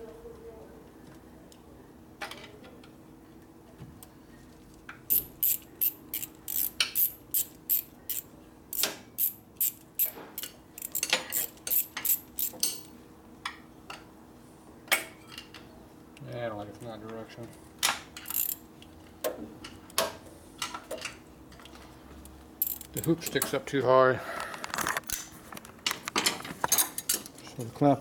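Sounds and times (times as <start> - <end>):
hand ratchet clicking: 5.1 - 12.9, 18.2 - 18.6, 22.6 - 23.3.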